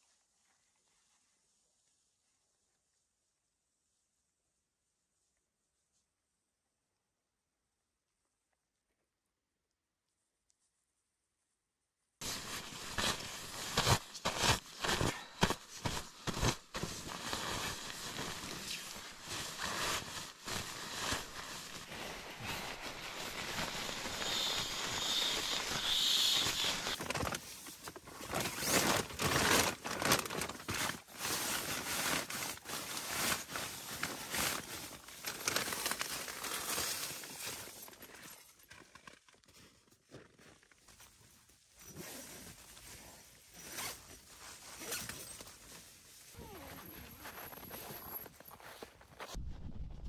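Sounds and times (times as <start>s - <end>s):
nylon gear rustling and crinkling: 12.2s - 49.4s.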